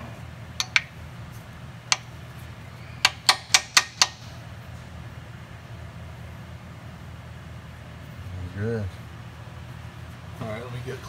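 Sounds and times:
tool clicking against metal: 0.6 - 0.9, 3.0 - 4.2.

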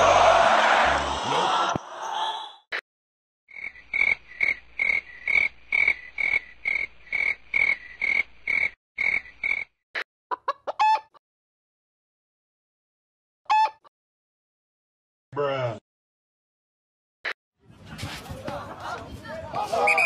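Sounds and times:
frog-like croaking: 3.5 - 9.8.

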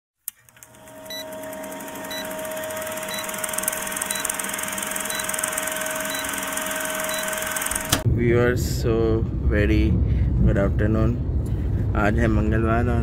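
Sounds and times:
film projector running: 0.3 - 8.0
short high beeps: 2.1 - 7.8.

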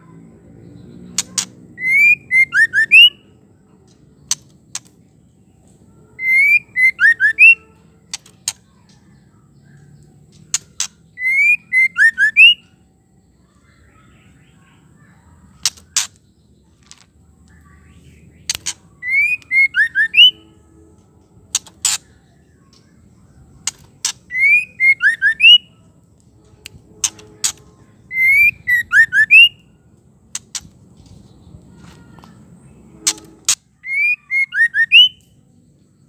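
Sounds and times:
bird whistled chattering calls: 1.1 - 3.2, 6.2 - 8.2, 10.5 - 12.7, 18.1 - 20.5, 23.6 - 25.7, 26.9 - 29.7, 33.0 - 35.3
bird clicking tack notes: 33.0 - 33.6.

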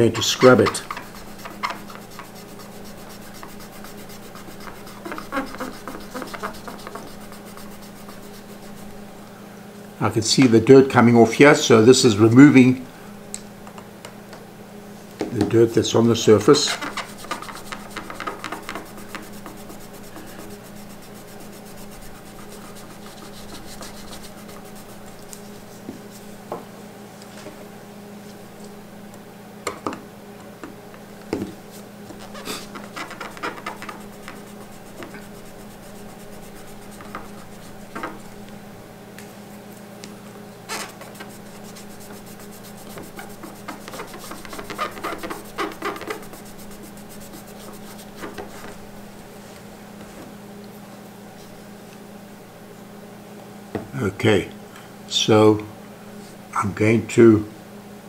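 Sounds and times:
steady low hum: 0.0 - 58.0
cotton swab rubbing metal: 0.2 - 9.0, 16.5 - 25.7, 32.1 - 38.4, 40.7 - 48.8
scratchy strokes: 0.2 - 9.0, 16.4 - 26.3, 31.7 - 38.4, 40.7 - 48.9.

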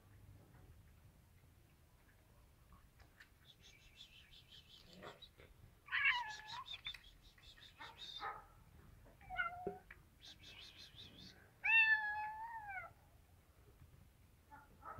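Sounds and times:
cats meowing: 5.8 - 7.0, 9.0 - 9.9, 11.6 - 12.9.

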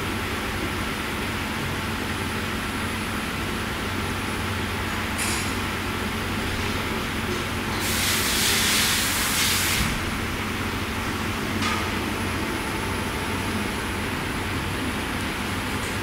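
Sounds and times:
hiss: 7.7 - 10.1.

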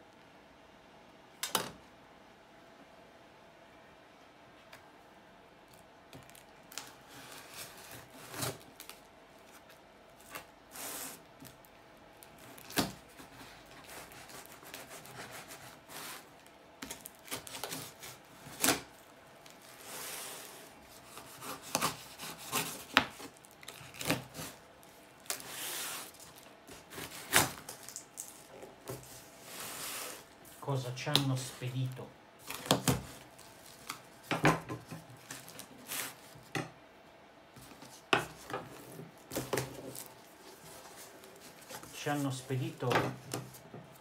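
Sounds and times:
knife cutting tape and cardboard: 6.8 - 9.0, 12.4 - 16.2, 16.8 - 18.9, 19.8 - 24.6, 25.3 - 27.8
tape ripping away: 16.8 - 19.0, 21.1 - 24.6, 25.2 - 28.5.

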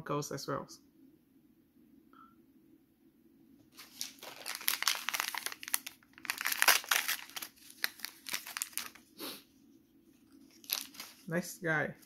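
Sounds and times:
plastic wrapper crinkling: 3.7 - 9.1, 10.3 - 11.3.

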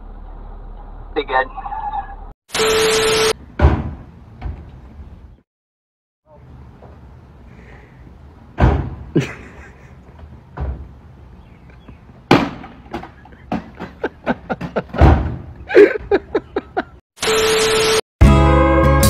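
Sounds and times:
banging on a truck canopy: 3.5 - 4.6, 8.6 - 9.2, 12.3 - 15.6.

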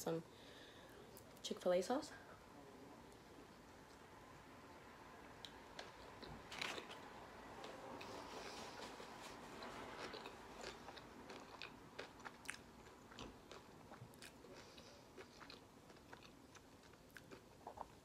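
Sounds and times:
chewing with mouth clicks: 9.6 - 18.0.

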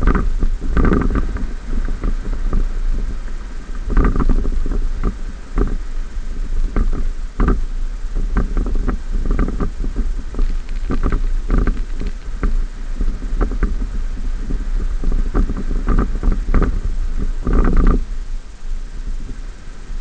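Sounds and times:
knocks and rattles of vehicle: 0.0 - 2.7, 6.7 - 13.9.

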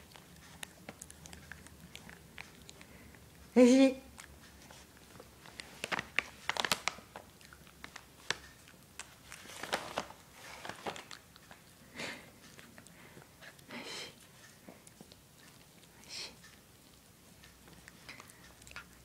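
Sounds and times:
dog teeth crunching chew stick: 0.0 - 3.5, 4.1 - 13.7, 14.4 - 19.0.

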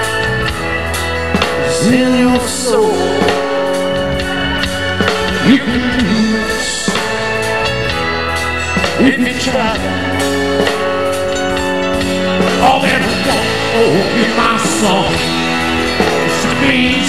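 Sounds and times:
rock band playing: 0.0 - 17.0
man singing: 1.4 - 7.7, 8.9 - 11.2, 12.4 - 17.0.

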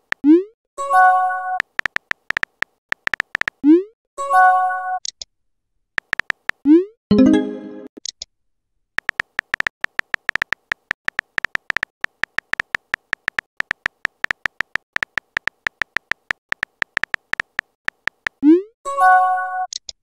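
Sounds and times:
phone keyboard clicks: 1.6 - 3.6, 6.0 - 6.6, 9.0 - 18.4
message chime: 7.1 - 7.9.

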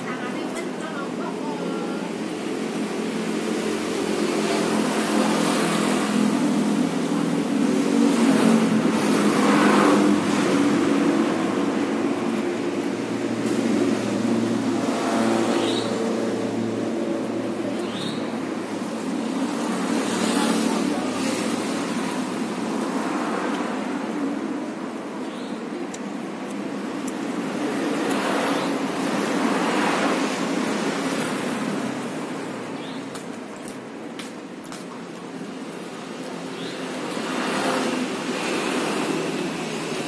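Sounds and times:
road traffic passing: 0.0 - 40.0.

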